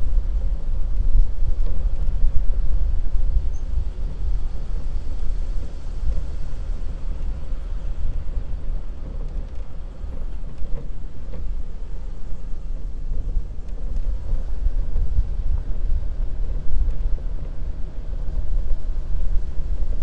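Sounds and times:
suv engine rumble: 0.0 - 20.0.

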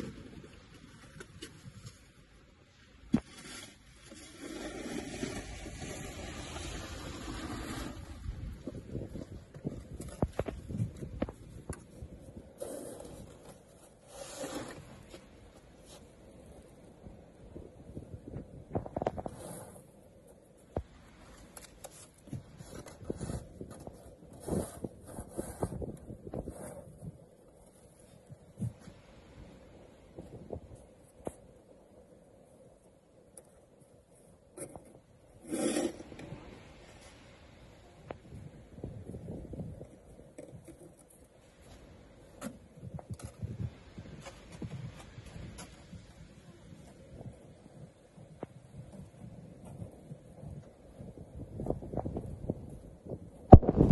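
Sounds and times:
wind rumble on microphone: 4.0 - 53.9
shovel scraping through snow: 12.6 - 15.2, 21.9 - 27.0, 35.4 - 36.4.

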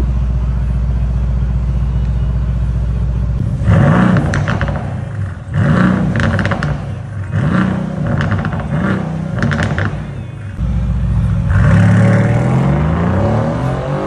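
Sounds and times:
car engine revving with crackles: 3.3 - 14.0.

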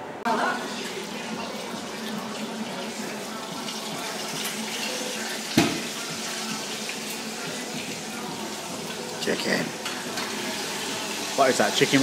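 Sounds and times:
roasting dish knocking: 5.6 - 5.9.

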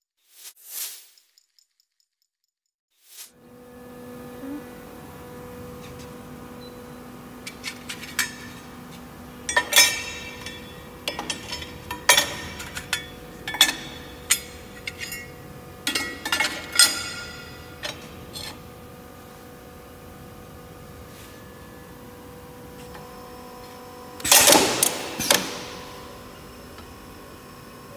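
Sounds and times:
steady machine hum: 3.4 - 27.9
steel pieces clanking: 9.5 - 18.6.

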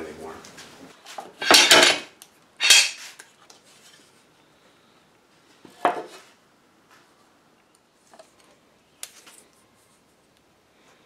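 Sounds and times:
metal clamps and boards clattering: 1.2 - 3.0.

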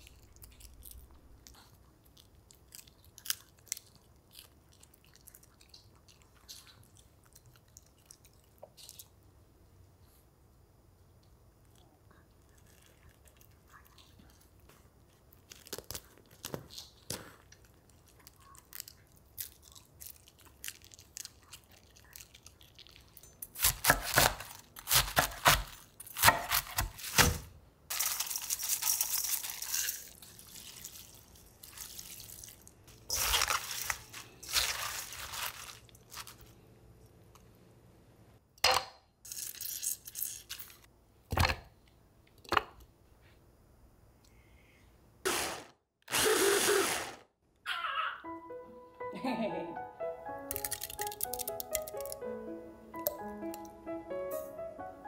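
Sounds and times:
crunchy food prep noises: 11.2 - 37.6
knife cutting cabbage on wooden board: 23.6 - 27.5.

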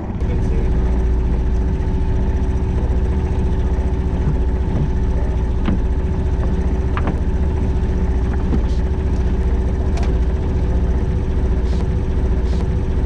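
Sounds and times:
boat engine running at low speed: 0.0 - 13.0.

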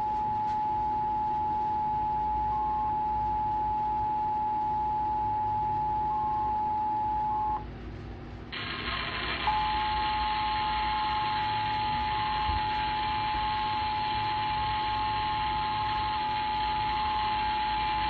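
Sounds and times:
broadcast hiss: 8.5 - 18.0.

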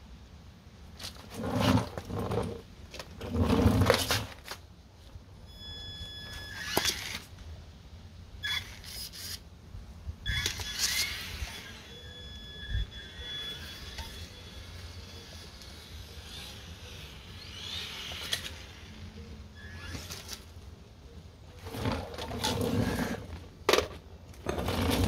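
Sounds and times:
rc car motor whining: 5.7 - 7.3, 8.4 - 9.4, 10.2 - 20.6, 21.6 - 23.4.

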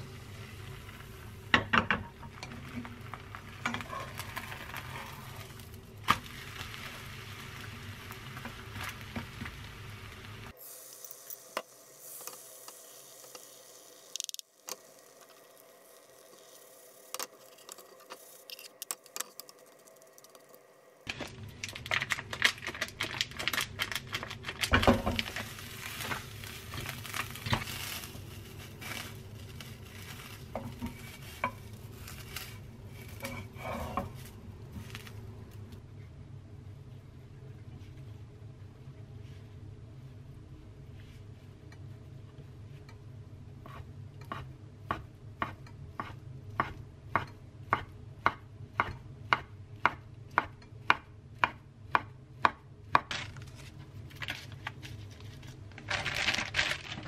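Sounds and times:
egg sizzling in a pan: 0.0 - 35.6
wooden spatula scraping pan: 3.6 - 5.6, 25.2 - 35.1.

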